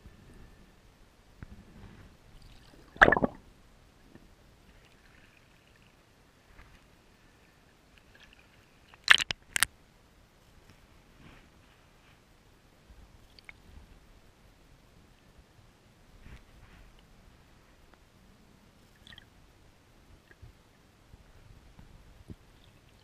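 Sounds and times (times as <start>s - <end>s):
faint low rumble: 0.0s - 23.0s
muffled water splashing: 2.4s - 3.5s.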